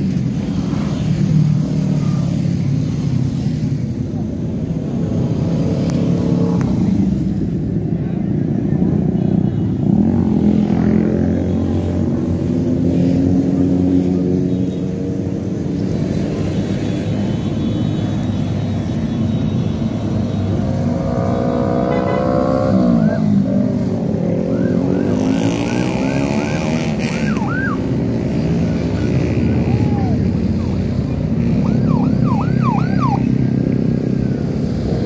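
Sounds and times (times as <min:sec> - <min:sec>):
motorcycle engines passing: 0:00.0 - 0:35.0
police motorcycle siren whoops: 0:24.3 - 0:28.3, 0:28.9 - 0:33.5.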